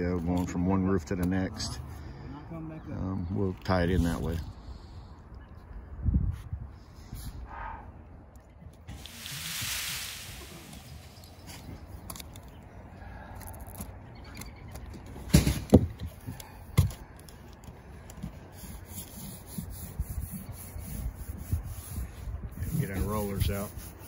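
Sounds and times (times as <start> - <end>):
hands scuffing tape on roof: 16.0 - 24.0.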